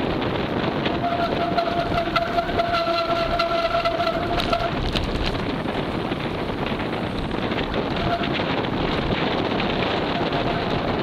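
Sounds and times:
wind rushing over microphone: 0:00.0 - 0:11.0
bicycle brake squeal: 0:00.9 - 0:04.8, 0:07.9 - 0:08.4, 0:10.1 - 0:10.8.

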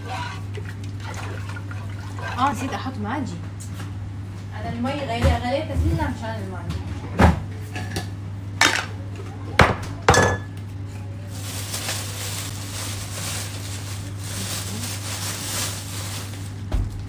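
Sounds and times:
dishes and utensils clinking: 0:10.0 - 0:10.7.

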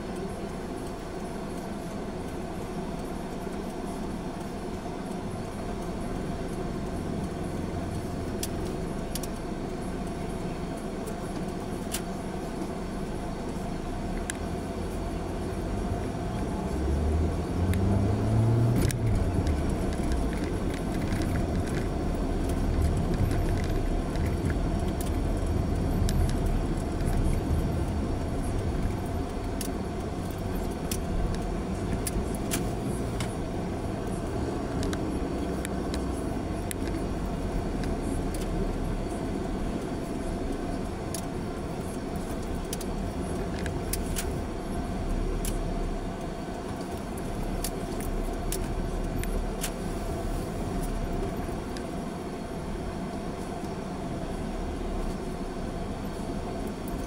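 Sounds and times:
car engine and road rumble: 0:00.0 - 0:57.0
light clicks and rattles: 0:18.8 - 0:33.5.

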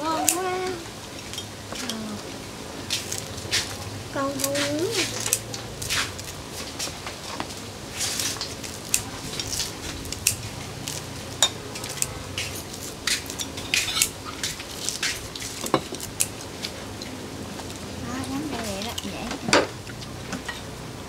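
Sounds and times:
utensils clinking on plates: 0:11.3 - 0:16.1.

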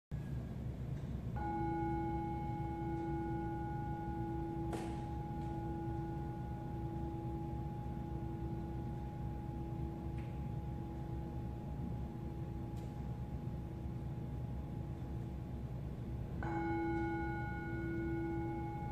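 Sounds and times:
singing bowl ringing: 0:01.4 - 0:18.9.

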